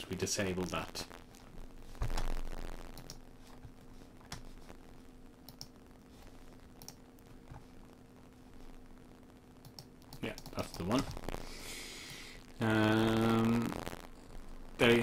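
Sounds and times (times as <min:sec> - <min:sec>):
low electrical hum: 0:00.0 - 0:15.0
computer mouse clicks: 0:05.4 - 0:05.7, 0:06.8 - 0:07.6.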